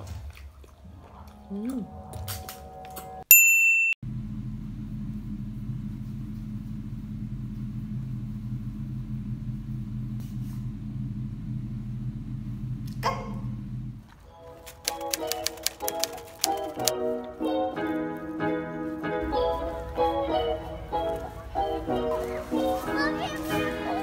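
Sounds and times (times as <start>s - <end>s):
fan humming: 4.1s - 18.4s.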